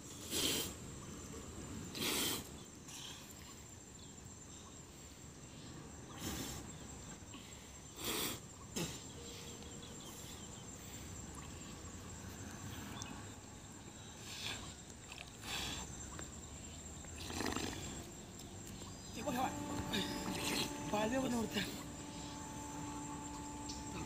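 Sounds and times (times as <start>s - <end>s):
faint insect drone: 0.0s - 24.0s
water splashing: 17.1s - 18.1s.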